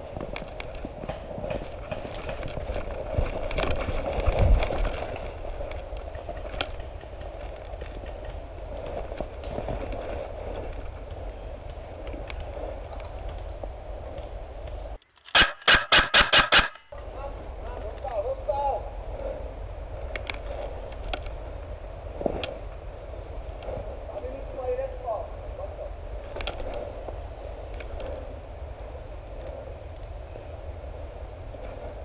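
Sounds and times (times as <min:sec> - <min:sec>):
gear rustling: 0:00.1 - 0:16.9
rapid airsoft rifle fire: 0:15.3 - 0:16.9.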